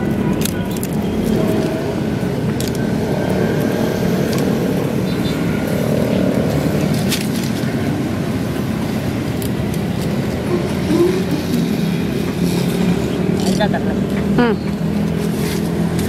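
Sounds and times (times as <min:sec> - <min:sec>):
bamboo sticks clicking: 0:00.0 - 0:01.8
road traffic rumble: 0:00.0 - 0:16.0.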